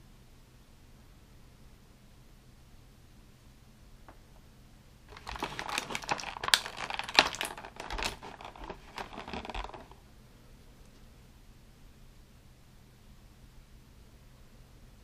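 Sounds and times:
plastic packaging crinkling: 0:05.1 - 0:10.0.

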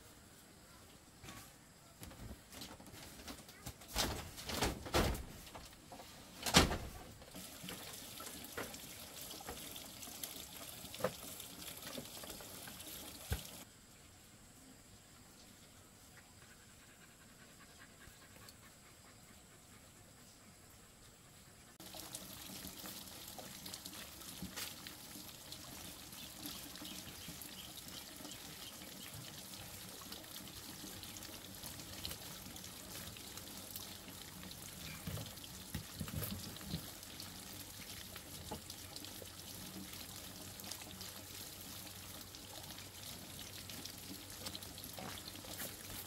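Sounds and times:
stream trickling over rocks: 0:07.2 - 0:13.7, 0:21.8 - 0:46.0.

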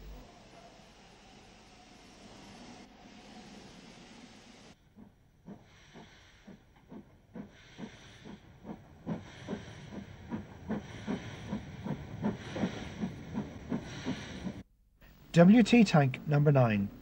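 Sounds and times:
hiss of steam: 0:00.0 - 0:04.8
steam locomotive exhaust chuffing: 0:00.0 - 0:14.7.

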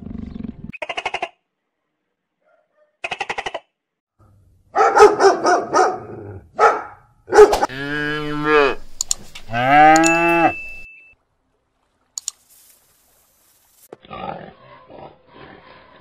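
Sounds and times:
cow mooing: 0:07.7 - 0:08.8, 0:09.5 - 0:10.6.

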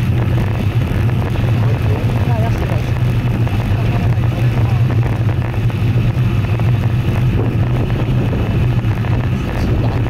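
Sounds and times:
rolling rumble: 0:00.0 - 0:10.0
wind rush on microphone: 0:00.0 - 0:10.0.

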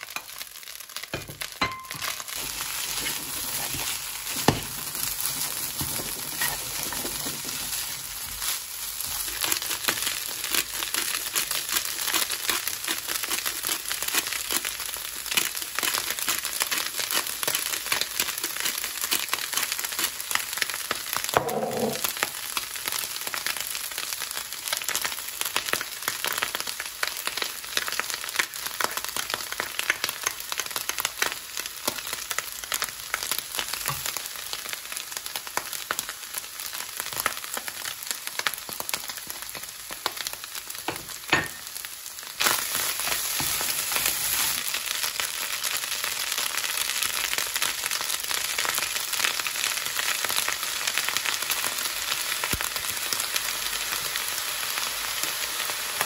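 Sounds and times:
rice sizzling in a pan: 0:00.0 - 0:56.0
spatula scraping and stirring: 0:01.9 - 0:14.7.

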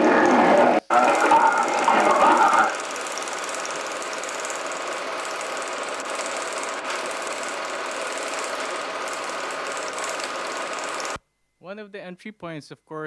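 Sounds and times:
film projector clatter with hiss: 0:00.9 - 0:11.2.

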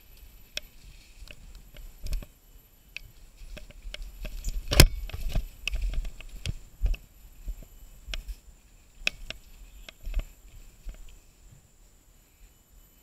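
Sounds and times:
bike rattling over dirt trail: 0:03.2 - 0:08.4.

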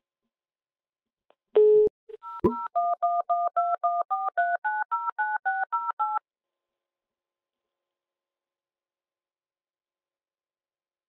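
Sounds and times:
telephone touch-tone keypad tones: 0:01.6 - 0:06.2.

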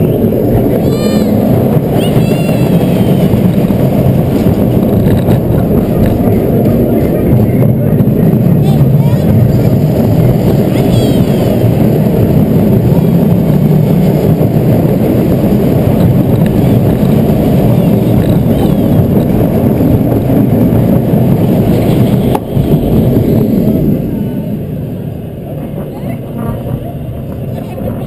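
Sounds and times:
roller coaster wheels rumbling on rails: 0:00.0 - 0:28.0.

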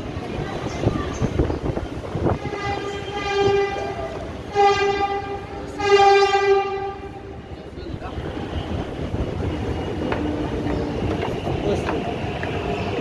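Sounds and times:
train horn: 0:02.3 - 0:07.4.

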